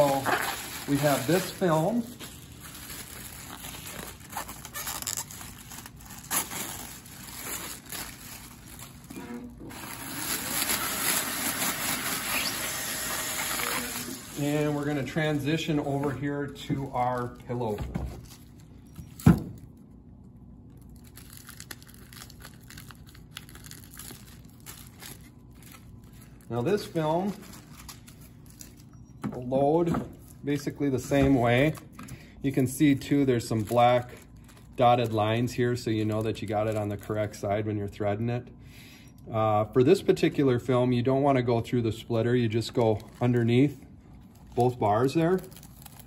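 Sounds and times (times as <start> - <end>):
bubble wrap crinkling and crackling: 0.0 - 18.8, 20.6 - 29.0, 32.5 - 37.5, 42.1 - 46.0.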